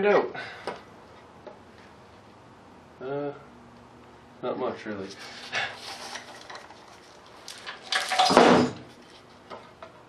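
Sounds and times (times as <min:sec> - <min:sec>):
metal clattering and scraping: 0:05.1 - 0:09.8.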